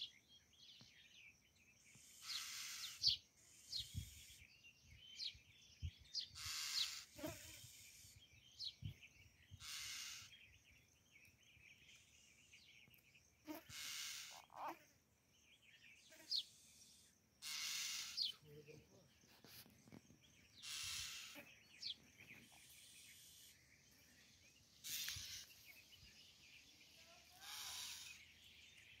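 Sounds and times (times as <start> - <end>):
bird chirps: 0.0 - 29.0
raspy hissing noise bursts: 9.6 - 10.3, 13.7 - 14.4, 16.4 - 18.4, 20.6 - 21.4, 24.8 - 25.6.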